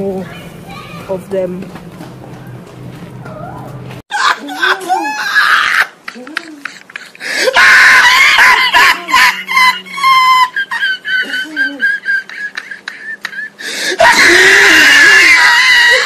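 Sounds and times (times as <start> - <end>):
young voice squealing and shrieking: 3.3 - 6.0, 7.5 - 10.6, 14.0 - 16.0.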